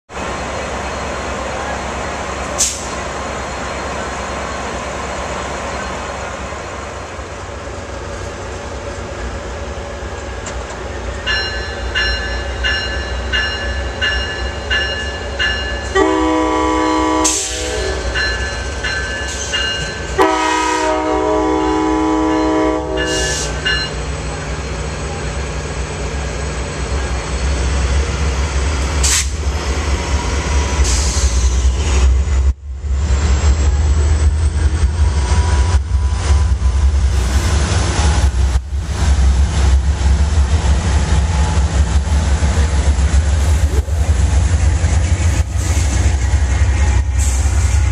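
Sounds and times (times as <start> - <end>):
diesel locomotive idling: 0.1 - 47.9
brief air hiss: 2.5 - 3.0, 29.0 - 29.4, 30.8 - 31.6, 47.1 - 47.9
sharp hiss: 47.0 - 47.9.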